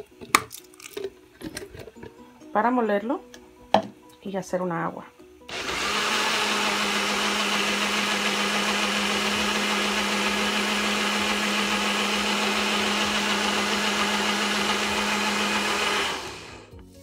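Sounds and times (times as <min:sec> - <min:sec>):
blender motor humming: 0:05.5 - 0:16.7.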